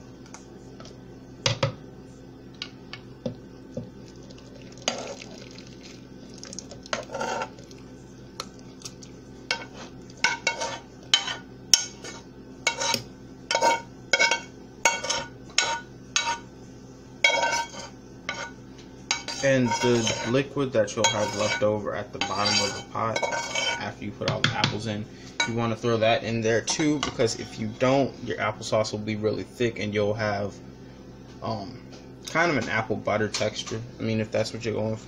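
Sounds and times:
steady low hum: 0.0s - 35.0s
utensil clinking and scraping a pot: 4.8s - 5.4s, 6.8s - 7.8s, 9.5s - 16.4s, 17.2s - 23.9s.

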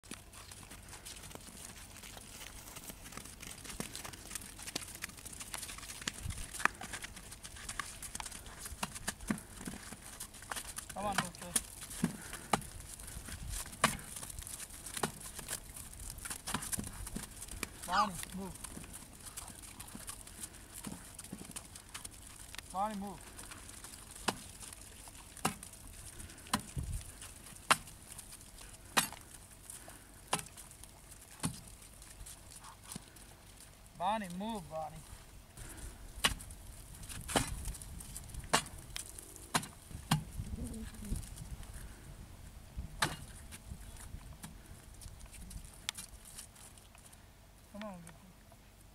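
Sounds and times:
feet tapping on ice: 0.0s - 33.2s
metal bar striking ice: 29.0s - 29.2s, 43.0s - 43.3s.

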